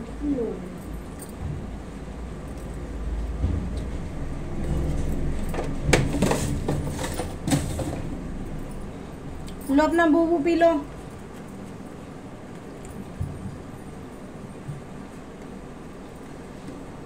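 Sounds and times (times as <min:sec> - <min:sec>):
low rumble: 0:00.1 - 0:11.1.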